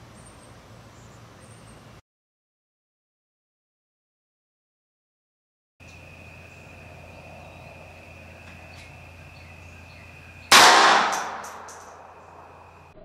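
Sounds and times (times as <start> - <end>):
faint hum with high tone: 0.0 - 2.0, 5.8 - 10.5, 11.3 - 13.0
pistol shot: 10.5 - 12.0.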